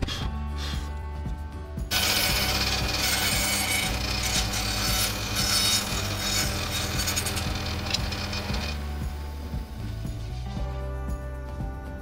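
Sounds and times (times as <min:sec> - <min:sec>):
background music with bass: 0:00.0 - 0:12.0
hand tool scraping: 0:01.9 - 0:08.9.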